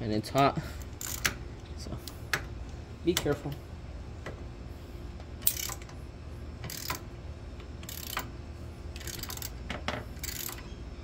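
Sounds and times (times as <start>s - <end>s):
hand ratchet clicking: 0.8s - 1.4s, 5.4s - 6.0s, 6.6s - 7.1s, 7.8s - 8.3s, 9.0s - 9.6s, 10.2s - 10.6s.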